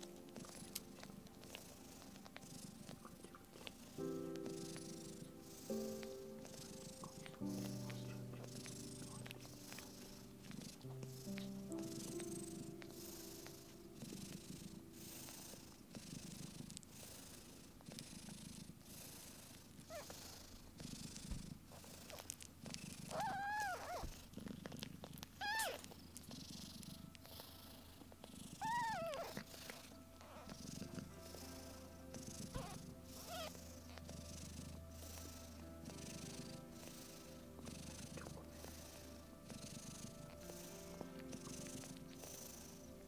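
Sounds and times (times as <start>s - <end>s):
cat purring: 0.0s - 43.0s
faint squeaks: 19.8s - 20.4s, 21.7s - 34.5s
cat mewing: 23.1s - 24.0s, 25.4s - 25.9s, 28.6s - 29.4s.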